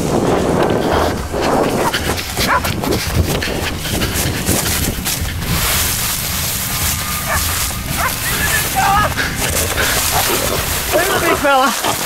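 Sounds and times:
wind buffeting microphone: 0:00.0 - 0:12.0
dogs crying: 0:01.7 - 0:02.8, 0:07.0 - 0:12.0.

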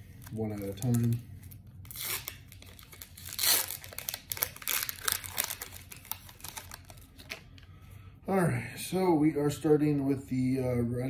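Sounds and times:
foil wrapper crackling: 0:00.1 - 0:07.4
foil wrapper tearing: 0:00.2 - 0:07.4.

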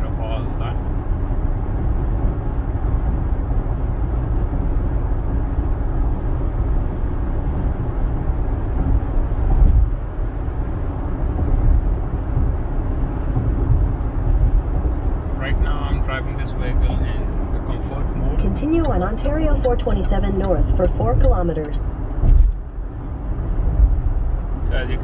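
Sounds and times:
tyre and wind noise in car: 0:00.0 - 0:17.7, 0:21.8 - 0:25.0.

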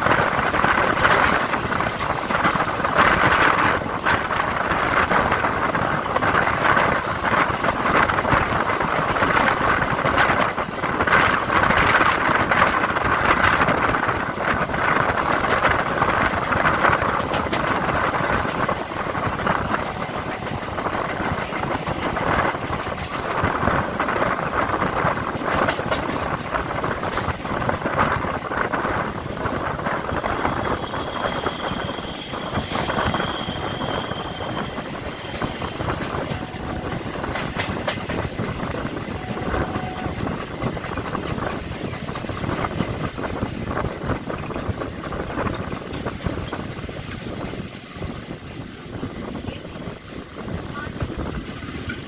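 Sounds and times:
train wheels rattling on rails: 0:00.0 - 0:52.0.

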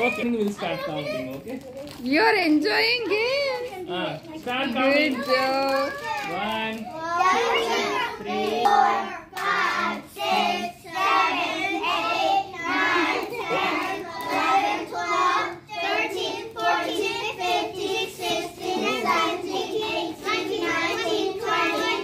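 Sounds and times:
children chanting in unison: 0:07.1 - 0:22.0.

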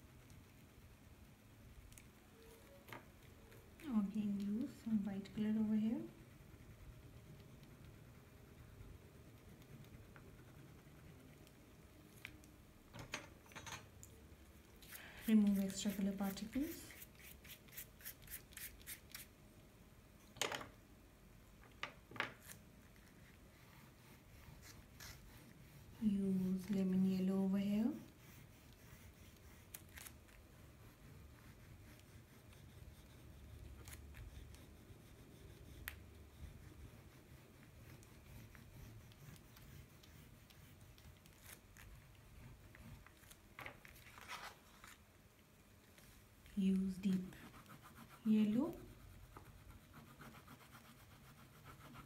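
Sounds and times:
fingers rubbing pastel on paper: 0:03.4 - 0:11.7, 0:14.9 - 0:19.3, 0:22.4 - 0:43.4, 0:47.0 - 0:52.0.

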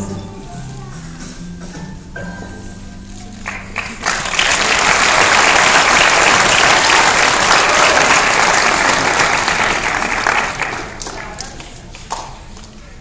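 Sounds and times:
audience applauding: 0:03.4 - 0:12.7.

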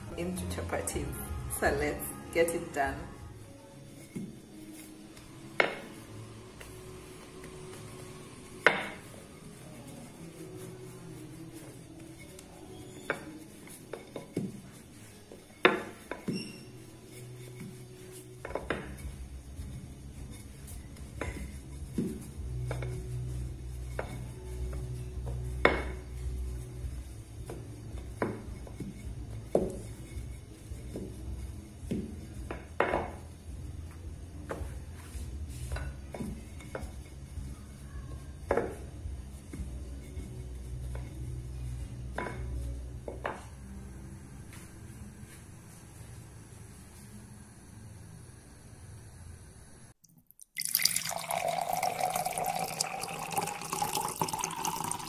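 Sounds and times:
rolling pin rolling dough: 0:00.0 - 0:47.6
pan crackling on gas stove: 0:03.8 - 0:33.3.

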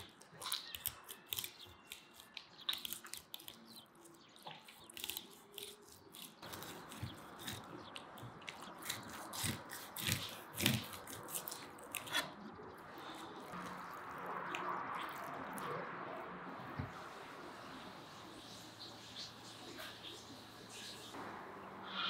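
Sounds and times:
knife slicing through fish bones: 0:04.7 - 0:12.5.

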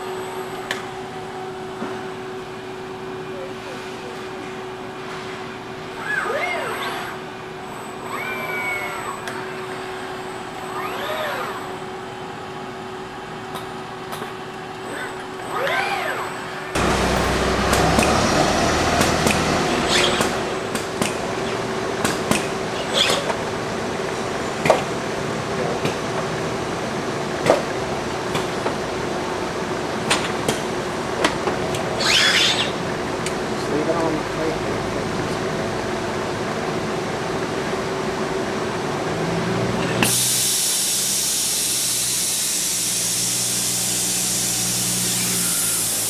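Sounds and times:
steady machine hum: 0:00.0 - 0:46.0
assembly line noise: 0:05.8 - 0:23.4, 0:31.7 - 0:33.9, 0:39.8 - 0:46.0
servo motors whining: 0:05.9 - 0:12.2, 0:14.5 - 0:21.6, 0:31.9 - 0:32.9, 0:40.0 - 0:46.0.

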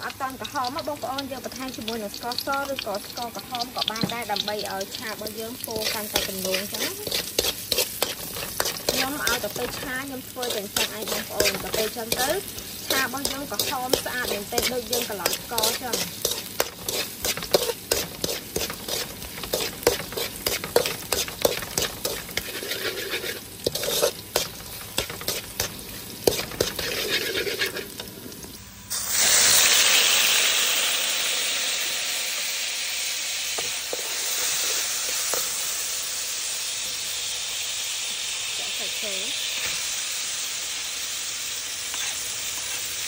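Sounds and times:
garlic sizzling in oil: 0:00.0 - 0:43.0
metal spatula scraping a wok: 0:01.6 - 0:28.3, 0:33.6 - 0:35.6, 0:41.9 - 0:43.0.

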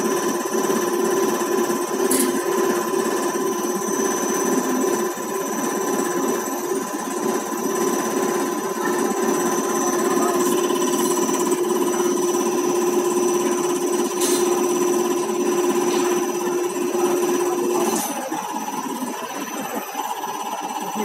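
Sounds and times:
pump whine: 0:00.0 - 0:21.0
injector clattering: 0:09.3 - 0:19.9.

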